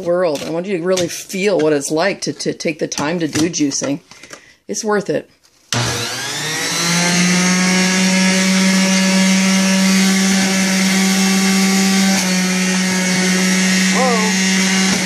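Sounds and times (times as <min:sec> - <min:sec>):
juicer motor high-pitched drone: 0:05.8 - 0:15.0.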